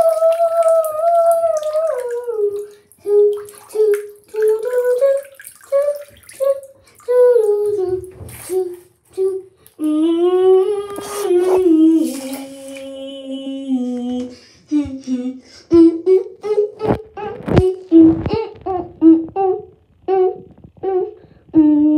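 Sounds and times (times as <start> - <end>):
water splashing in a bathtub: 0.0 - 19.5
person humming: 0.0 - 21.9.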